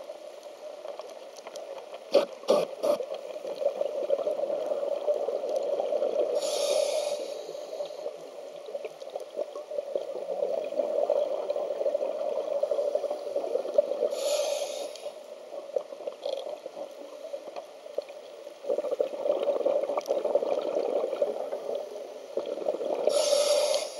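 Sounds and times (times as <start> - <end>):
regulator hissing inhalations: 6.3 - 8.2, 14.1 - 15.2, 23.0 - 23.9
gurgle of exhaled bubbles: 18.7 - 21.8, 22.4 - 23.2.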